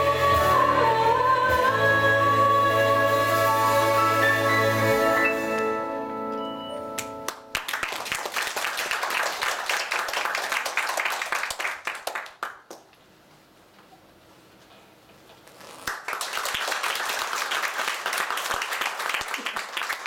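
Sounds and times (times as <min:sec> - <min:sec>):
choir and band chord: 0:00.0 - 0:07.5
audience applause: 0:07.0 - 0:12.8, 0:15.9 - 0:20.0.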